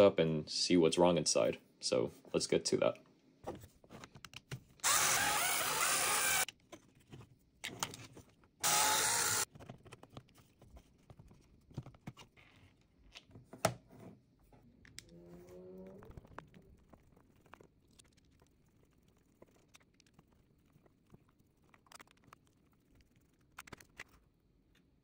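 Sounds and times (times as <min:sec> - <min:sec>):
electric screwdriver running: 0:04.8 - 0:06.5, 0:08.6 - 0:09.5.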